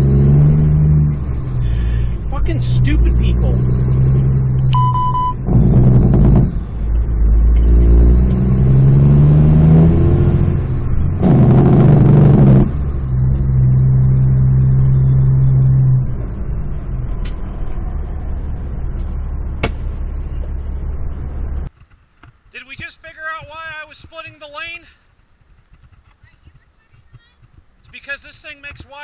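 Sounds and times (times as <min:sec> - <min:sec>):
diesel truck engine under load: 0:00.0 - 0:21.8.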